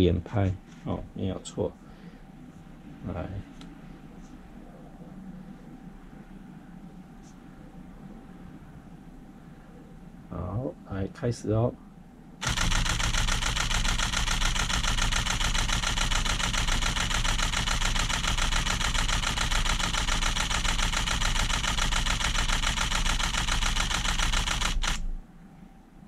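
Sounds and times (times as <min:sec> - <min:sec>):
camera shutter burst clacking: 0:12.4 - 0:25.2.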